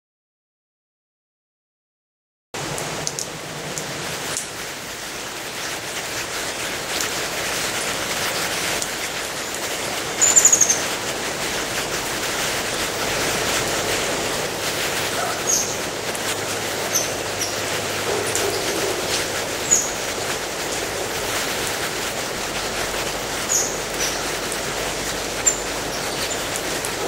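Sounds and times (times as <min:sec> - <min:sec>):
steady hiss: 0:02.6 - 0:27.0
monkey chirping: 0:10.2 - 0:10.9, 0:15.2 - 0:15.8, 0:19.6 - 0:20.0, 0:23.5 - 0:24.3.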